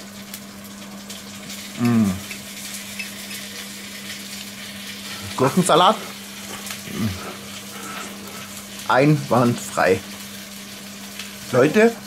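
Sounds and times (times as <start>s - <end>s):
steady hiss and low hum: 0.0s - 12.0s
man humming mmm: 1.6s - 2.4s, 6.5s - 8.5s.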